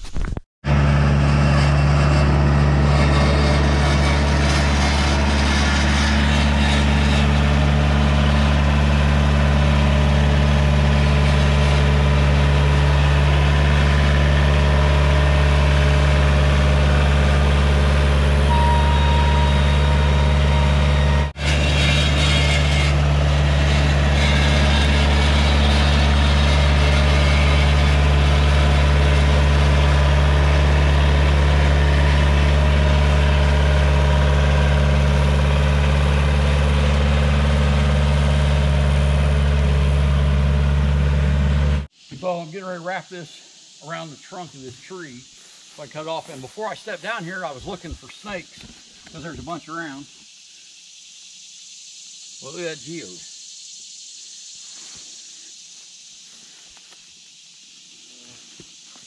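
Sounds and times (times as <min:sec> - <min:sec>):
skid steer engine running: 0:00.6 - 0:41.9.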